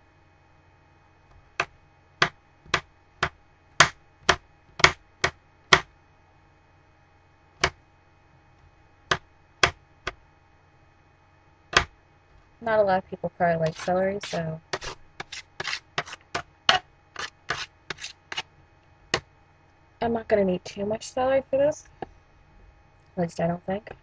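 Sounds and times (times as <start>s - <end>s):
knife chopping on metal pan: 1.6s - 5.9s, 13.6s - 18.4s.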